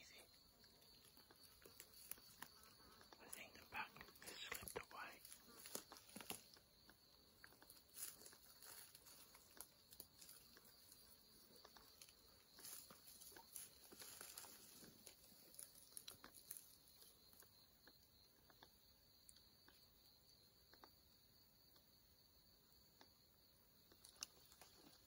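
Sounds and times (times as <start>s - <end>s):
rustling of dry grass and leaves: 0.0s - 18.7s, 23.8s - 25.0s
high-pitched insect hum: 0.0s - 25.0s.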